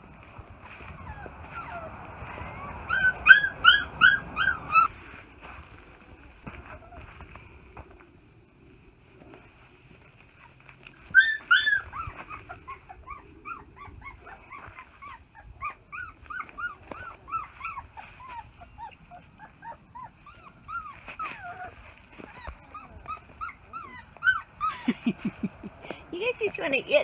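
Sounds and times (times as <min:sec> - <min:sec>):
puppy whimpering: 0:00.7 - 0:05.0, 0:06.5 - 0:07.3, 0:10.4 - 0:25.5
puppy yelping: 0:00.8 - 0:05.0, 0:10.4 - 0:25.4.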